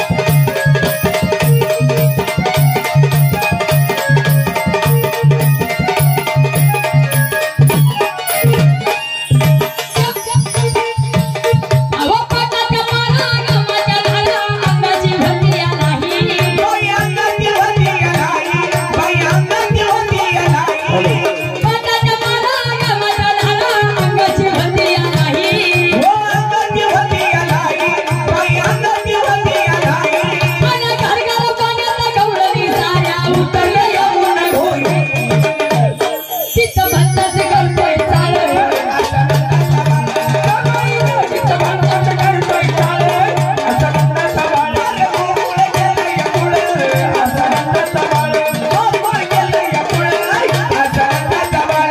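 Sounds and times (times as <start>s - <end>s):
held instrumental notes: 0.0s - 22.1s
fast hand-drum rhythm: 0.0s - 51.9s
woman singing: 0.0s - 51.9s.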